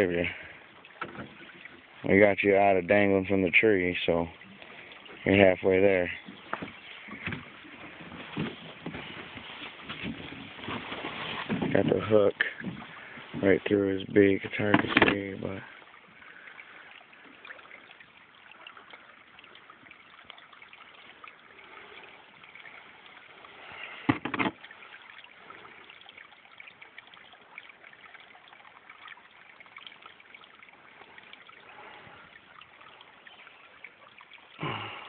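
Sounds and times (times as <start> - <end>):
faint trickling water: 0.0 - 35.0.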